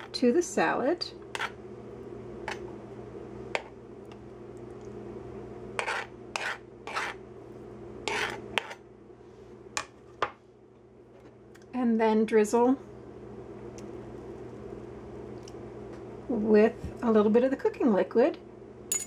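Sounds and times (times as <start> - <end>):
faint steady hum: 0.0 - 19.0
fork scraping on plate: 1.4 - 1.6, 5.8 - 7.2, 8.1 - 8.8.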